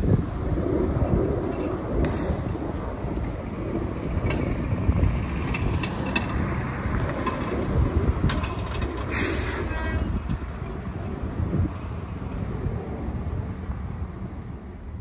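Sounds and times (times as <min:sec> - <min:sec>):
bus engine rumbling: 0:00.0 - 0:15.0
air brake hiss: 0:02.0 - 0:02.7, 0:09.1 - 0:10.0.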